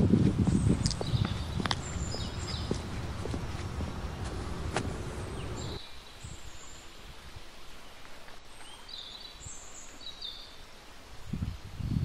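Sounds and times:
low rustling noise: 0:00.0 - 0:08.9
small birds chirping: 0:00.5 - 0:12.0.

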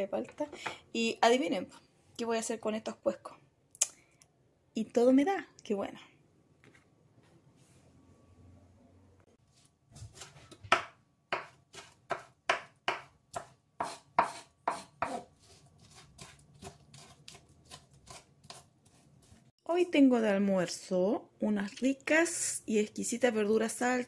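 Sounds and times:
knife chopping on wooden board: 0:10.1 - 0:19.0.

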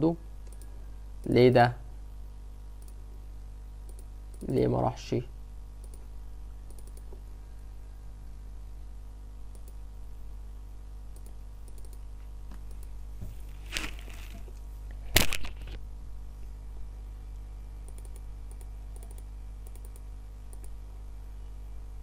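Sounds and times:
steady low hum: 0:00.0 - 0:22.0
keyboard and mouse clicks: 0:02.8 - 0:03.0, 0:03.9 - 0:04.6, 0:05.8 - 0:06.1, 0:06.7 - 0:07.2, 0:09.5 - 0:09.8, 0:11.1 - 0:13.0, 0:17.9 - 0:20.8.

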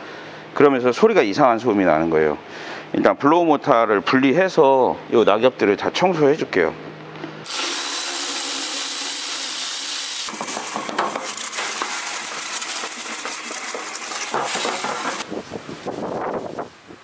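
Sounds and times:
tap water running into steel sink: 0:07.5 - 0:15.3.

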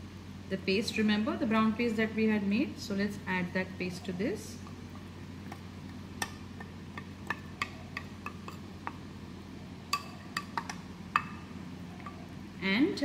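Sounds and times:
low steady hum: 0:00.0 - 0:13.0
spoon clinking against pot: 0:06.2 - 0:09.0, 0:09.9 - 0:12.2.

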